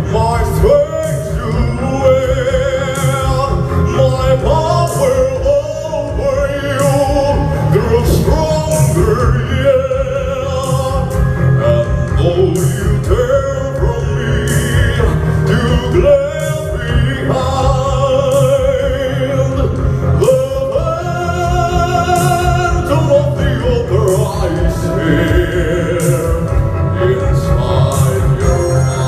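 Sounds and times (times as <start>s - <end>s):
amplified backing track with bass: 0.0s - 29.0s
operatic singing: 0.0s - 29.0s.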